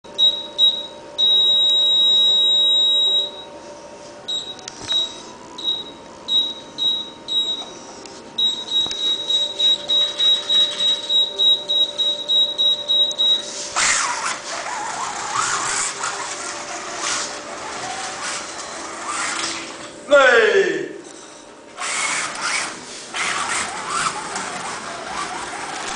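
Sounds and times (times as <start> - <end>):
high-pitched electronic beeping: 8.4 - 13.6
slot car whirring with clicks: 13.8 - 20.0, 21.1 - 25.9.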